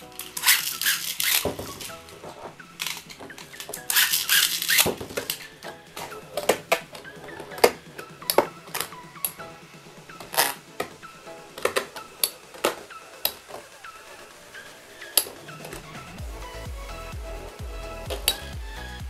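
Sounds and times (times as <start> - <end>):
spinning tops clacking: 0.0 - 2.0
spinning tops rattling and clattering: 0.2 - 1.9.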